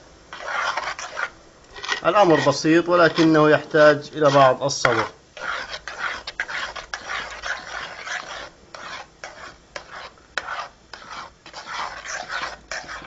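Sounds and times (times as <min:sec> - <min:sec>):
spoon scraping metal pot: 0:00.3 - 0:13.0.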